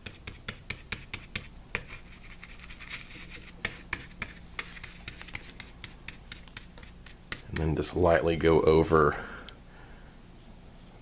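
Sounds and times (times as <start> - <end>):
bristle paintbrush scratching: 0.0 - 7.8.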